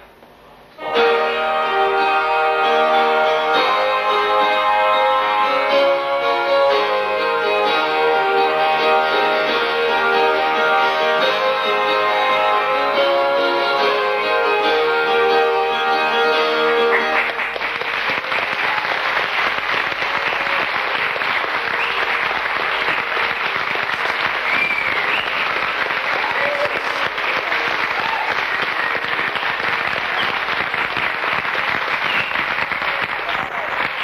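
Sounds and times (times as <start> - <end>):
audience applauding: 15.4 - 34.0
audience cries: 18.3 - 31.1.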